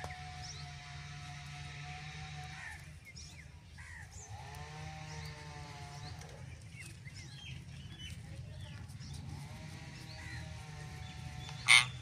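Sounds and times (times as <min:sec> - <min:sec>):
parakeets chirping and calling: 0:10.1 - 0:12.0.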